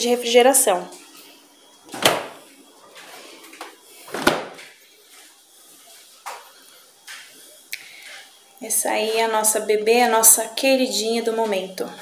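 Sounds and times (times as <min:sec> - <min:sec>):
refrigerator door thudding shut: 0:02.0 - 0:02.4, 0:04.1 - 0:04.6.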